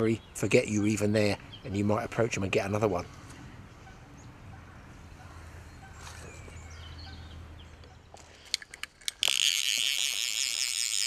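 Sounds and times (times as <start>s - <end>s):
faint riverside ambience: 0.0s - 11.0s
thin bird calls: 3.0s - 8.5s
sharp clicks: 7.8s - 11.0s
fly reel ratcheting buzz: 9.0s - 11.0s.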